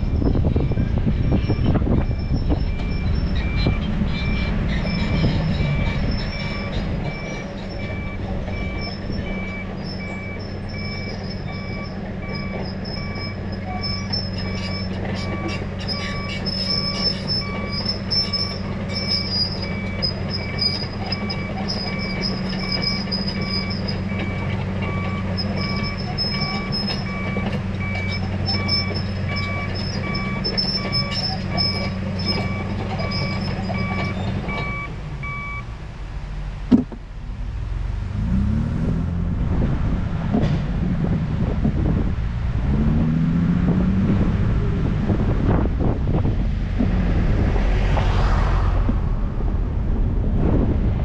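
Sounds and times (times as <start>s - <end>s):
engine pulling away: 37.2s - 51.0s.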